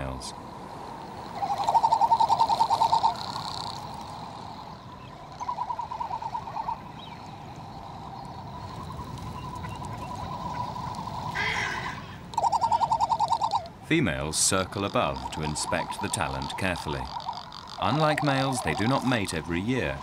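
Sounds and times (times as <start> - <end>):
frigatebird pulsing warble call: 0.0 - 20.0.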